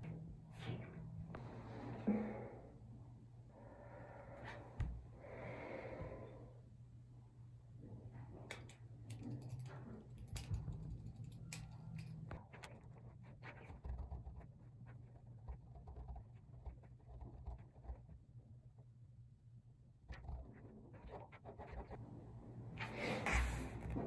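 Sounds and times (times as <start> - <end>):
steady low hum: 0.0 - 24.0
pen scratching on paper: 12.8 - 18.1, 20.2 - 22.0.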